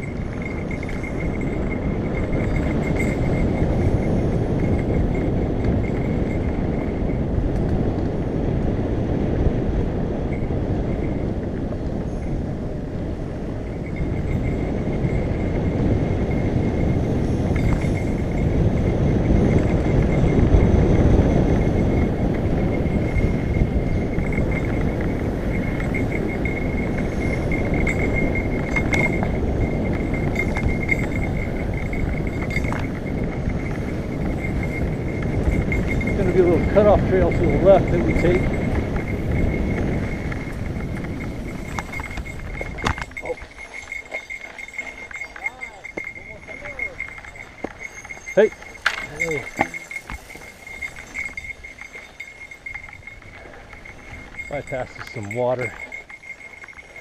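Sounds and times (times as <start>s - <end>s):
bike tyres rumbling on dirt: 0.0s - 57.0s
wind on microphone: 0.0s - 57.0s.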